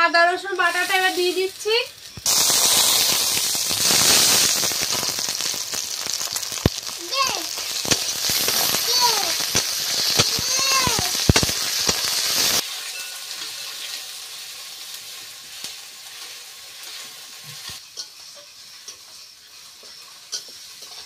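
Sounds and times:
onions sizzling in hot oil: 0.0s - 21.0s
metal spatula scraping wok: 16.0s - 21.0s.

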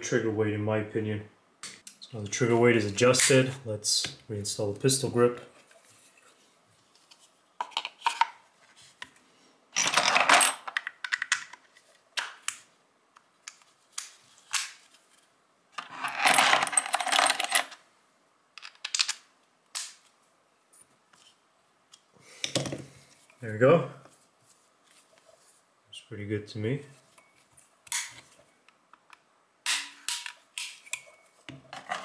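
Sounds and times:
metal parts clicking and rattling: 9.8s - 11.6s, 15.8s - 17.8s.

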